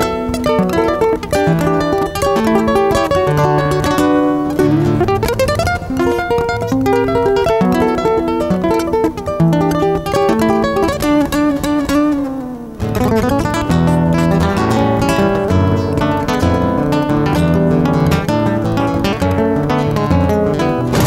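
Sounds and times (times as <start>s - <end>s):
fingerstyle classical guitar: 0.0s - 21.0s.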